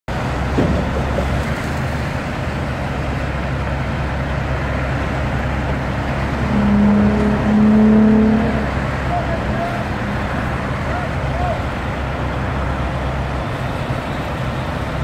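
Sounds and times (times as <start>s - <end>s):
road traffic rumble: 0.1s - 15.0s
low droning tone: 5.3s - 11.3s.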